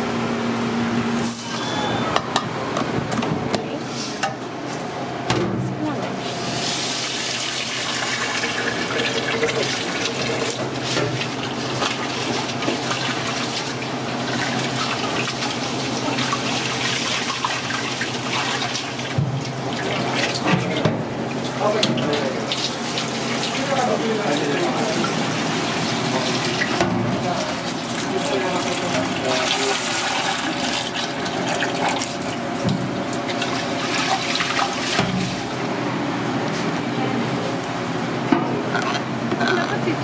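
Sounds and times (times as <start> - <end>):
tap water running into pot: 6.6 - 35.5.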